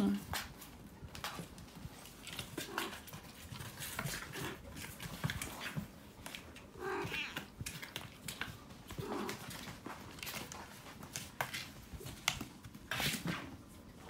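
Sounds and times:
soft rustling: 0.0 - 14.0
cat meowing: 6.8 - 7.6.

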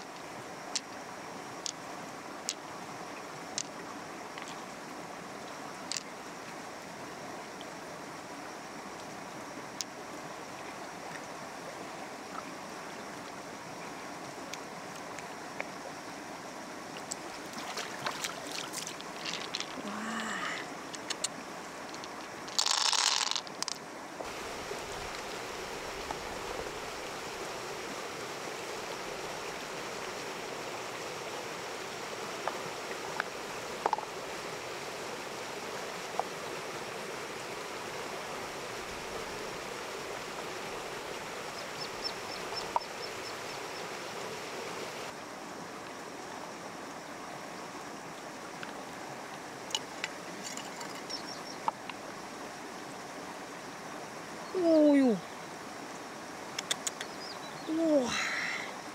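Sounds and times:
water rushing: 0.0 - 58.9
light clicks: 56.6 - 57.1.

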